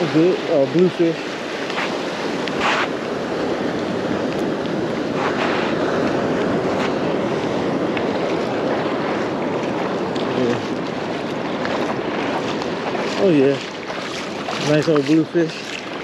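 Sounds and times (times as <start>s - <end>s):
surf breaking: 0.0s - 16.0s
wind buffeting microphone: 0.0s - 16.0s.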